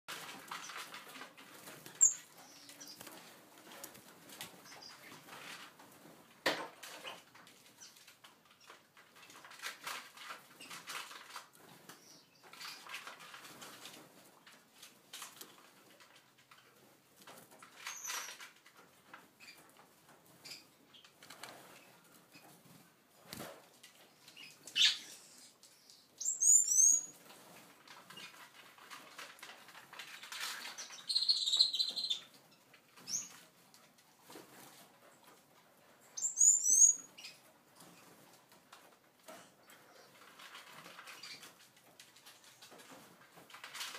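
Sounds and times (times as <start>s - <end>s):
finches chirping: 36.2s - 37.4s.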